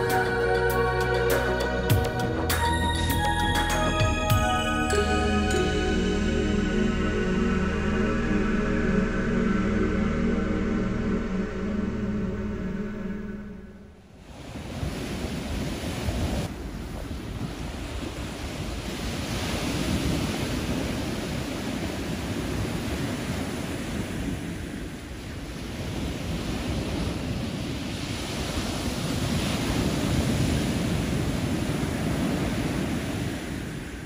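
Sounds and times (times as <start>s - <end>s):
wind rumbling on microphone: 4.1s - 34.0s
small waves breaking on a beach: 14.1s - 34.0s.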